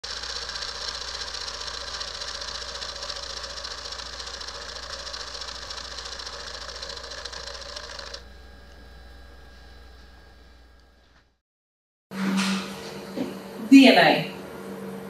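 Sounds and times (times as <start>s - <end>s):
rapid buzzing rattle: 0.0s - 8.3s.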